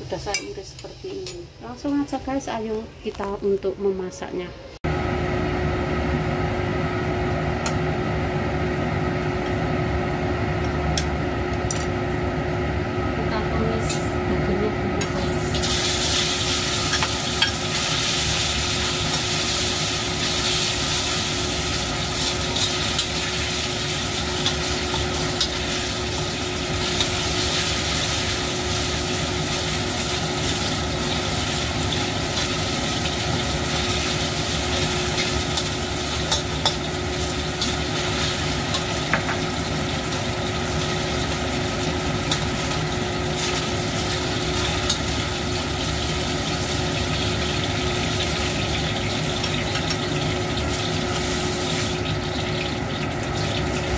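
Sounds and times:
steady hum: 0.0 - 48.3
meat sizzling in hot oil: 15.0 - 53.9.

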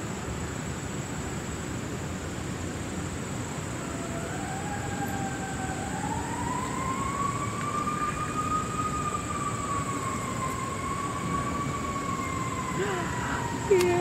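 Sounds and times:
low rumble of traffic: 0.0 - 14.0
high-pitched whine: 2.4 - 14.0
distant siren wailing: 3.3 - 14.0.

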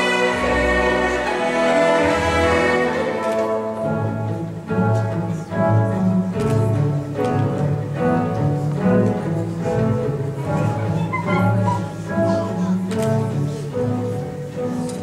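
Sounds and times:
orchestral music with bowed strings: 0.0 - 15.0.

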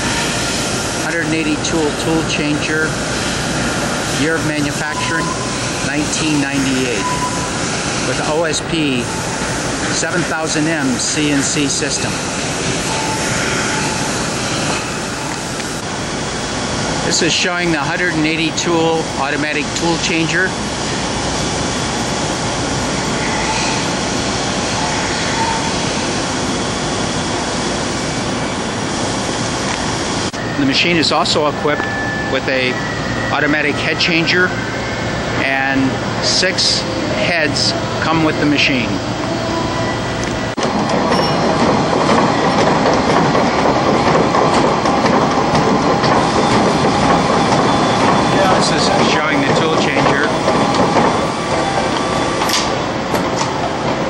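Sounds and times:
machine clattering: 40.6 - 54.0.

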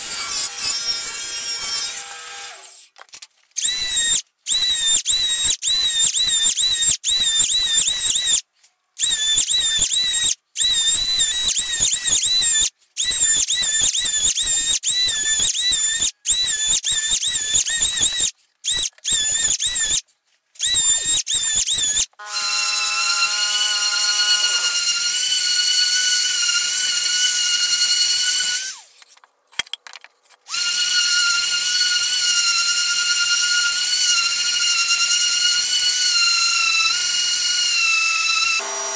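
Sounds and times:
electric hand planer whine: 38.6 - 38.9
orbital sander whine: 38.6 - 38.9.

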